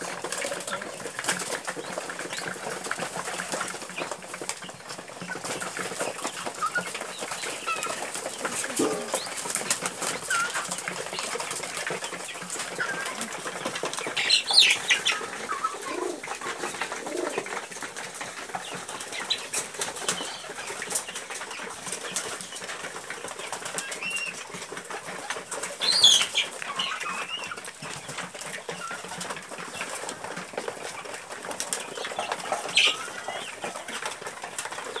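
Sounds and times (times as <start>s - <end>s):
pigeons flapping wings: 0.0s - 35.0s.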